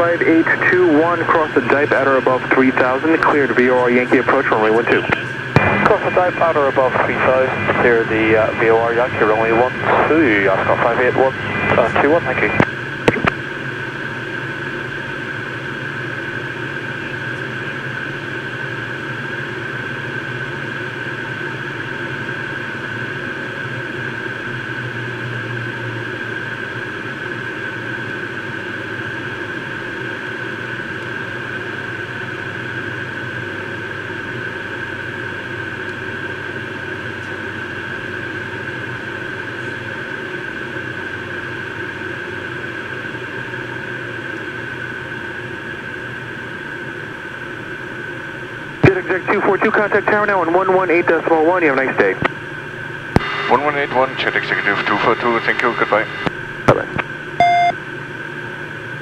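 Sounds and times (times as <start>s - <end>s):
airflow and jet engines rushing: 0.0s - 59.0s
high whine: 0.0s - 59.0s.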